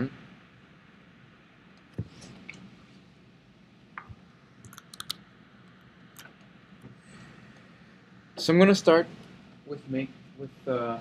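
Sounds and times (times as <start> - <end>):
faint room hum: 0.0 - 11.0
keyboard and mouse clicks: 4.0 - 5.2.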